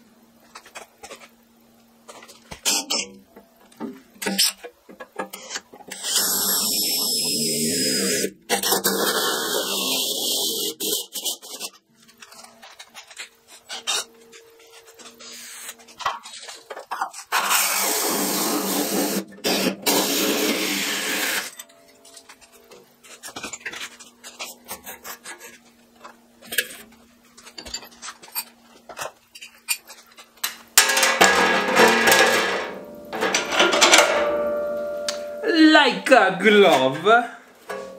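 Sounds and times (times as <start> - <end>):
hole saw cutting sheet metal: 5.4 - 11.8, 17.3 - 21.6.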